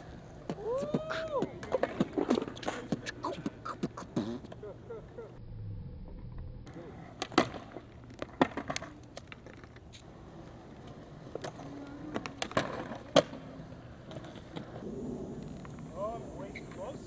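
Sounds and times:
skateboard wheels rolling on concrete: 0:00.0 - 0:05.4, 0:06.1 - 0:17.0
skateboard clacks: 0:00.4 - 0:04.6, 0:07.2 - 0:10.1, 0:10.7 - 0:14.8.

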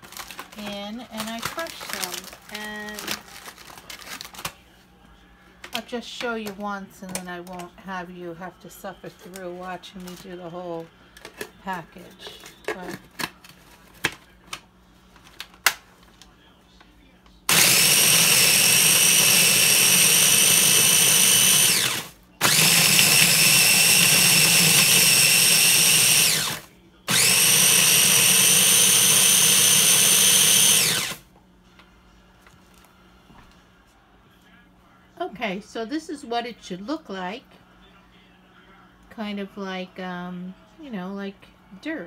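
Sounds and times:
food processor motor whining: 0:17.5 - 0:31.2.

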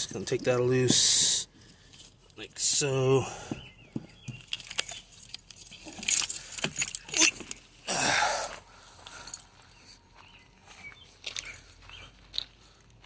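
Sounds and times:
handling clicks and knocks: 0:03.5 - 0:07.6.

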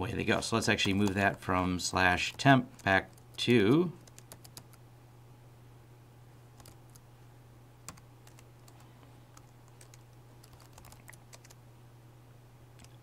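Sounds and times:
steady low hum: 0:00.0 - 0:13.0
typing on computer keyboard: 0:00.8 - 0:01.4, 0:04.0 - 0:04.8, 0:06.6 - 0:07.0, 0:07.9 - 0:08.8, 0:09.4 - 0:11.6, 0:12.8 - 0:13.0.

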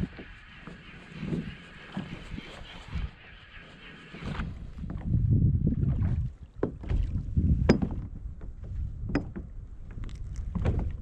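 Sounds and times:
wind on microphone: 0:00.0 - 0:11.0
water against kayak hull: 0:04.0 - 0:11.0.

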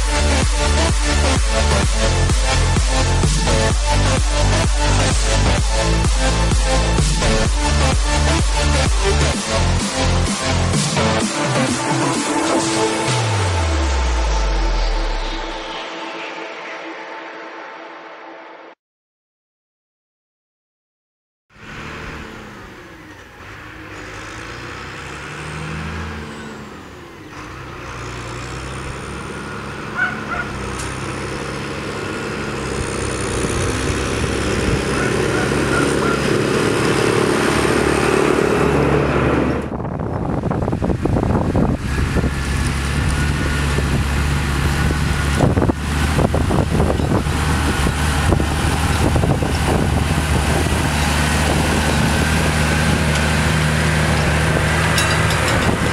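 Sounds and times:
tractor diesel engine: 0:00.0 - 0:15.7, 0:21.5 - 0:55.9
tractor engine under load: 0:21.6 - 0:55.9.

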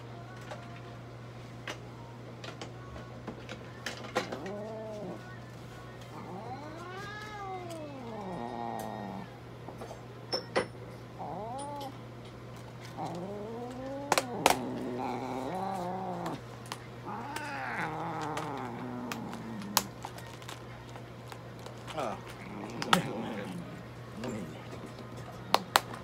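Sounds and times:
cat yowling: 0:06.2 - 0:09.3, 0:11.2 - 0:12.0, 0:13.0 - 0:16.4, 0:17.0 - 0:20.0.

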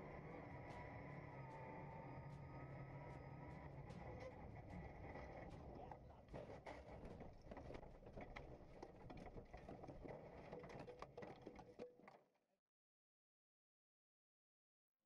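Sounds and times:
knocks and clatters: 0:04.7 - 0:12.2.

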